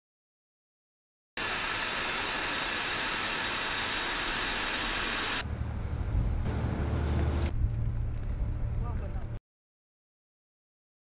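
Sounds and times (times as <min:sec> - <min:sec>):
jet engine airflow hiss: 0:01.4 - 0:05.4.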